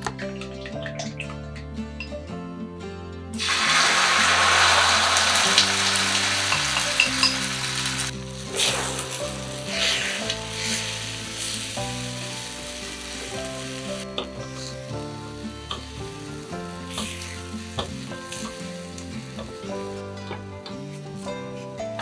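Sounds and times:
soft background music: 0:00.0 - 0:22.0
food sizzling in a frying pan: 0:03.4 - 0:20.3.

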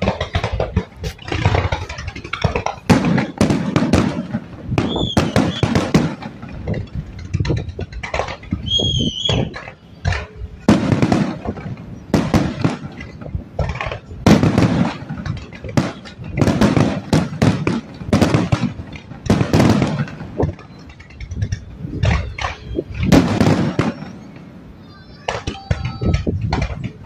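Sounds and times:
fireworks bangs: 0:00.0 - 0:27.0
firework whistle: 0:04.7 - 0:06.0, 0:08.5 - 0:10.8, 0:21.9 - 0:26.4.

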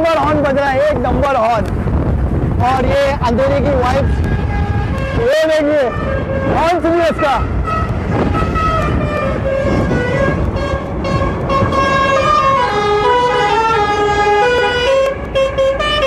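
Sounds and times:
road and wind noise: 0:00.0 - 0:16.0
musical bus horn playing a tune: 0:04.2 - 0:05.2, 0:07.4 - 0:16.0.

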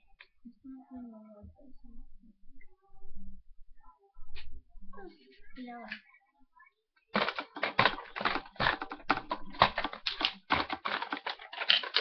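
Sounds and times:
rapid clicking and clattering: 0:07.2 - 0:12.0.

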